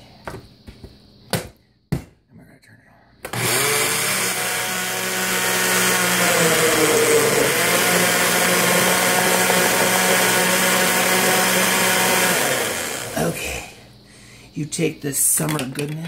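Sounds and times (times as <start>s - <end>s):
blender pureeing fruit: 3.3s - 13.7s.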